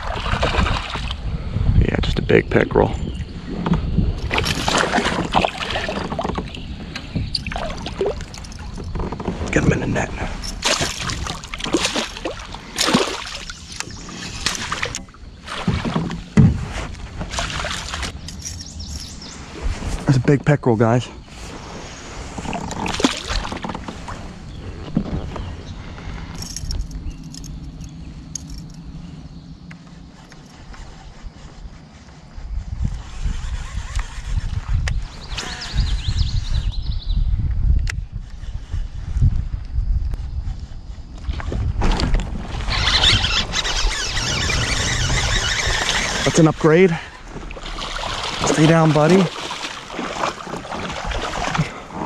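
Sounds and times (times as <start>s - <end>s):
water splashing: 4.2s - 6.6s, 7.3s - 8.8s, 10.6s - 18.2s, 22.4s - 24.2s, 42.6s - 52.0s.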